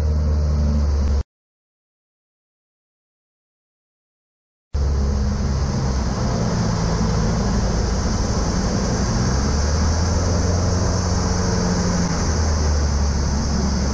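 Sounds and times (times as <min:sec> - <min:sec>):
propeller engine droning: 0:00.0 - 0:01.2, 0:04.8 - 0:13.9.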